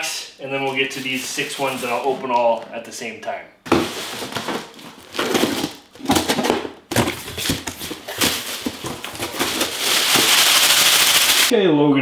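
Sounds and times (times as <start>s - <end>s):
cardboard scraping and tearing: 3.7s - 11.5s
tape ripping hiss: 9.3s - 11.5s.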